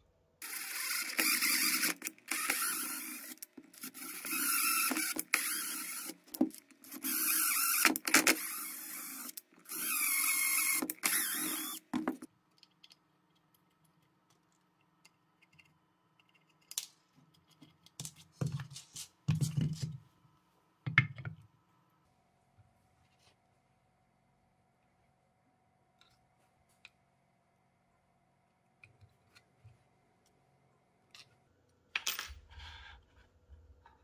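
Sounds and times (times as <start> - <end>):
cordless drill drilling wood: 0.4 - 12.1.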